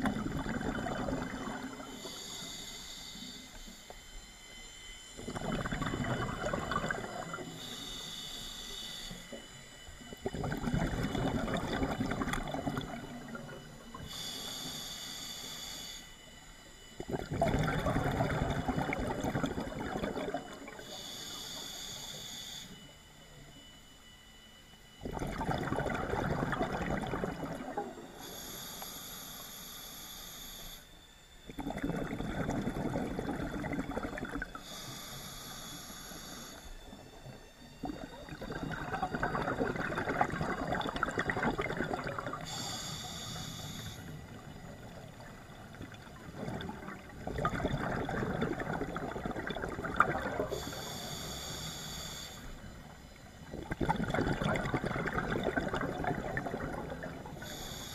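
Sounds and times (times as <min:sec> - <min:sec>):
bubbling exhale: 0:00.0 - 0:02.8, 0:05.2 - 0:08.0, 0:10.2 - 0:14.7, 0:17.1 - 0:22.1, 0:25.0 - 0:28.7, 0:31.5 - 0:36.5, 0:37.8 - 0:52.6, 0:53.5 - 0:57.9
regulator hissing inhale: 0:01.6 - 0:03.8, 0:06.8 - 0:09.4, 0:13.9 - 0:16.2, 0:20.7 - 0:23.0, 0:28.1 - 0:31.0, 0:34.3 - 0:37.2, 0:41.6 - 0:46.7, 0:50.2 - 0:53.3, 0:56.8 - 0:57.9.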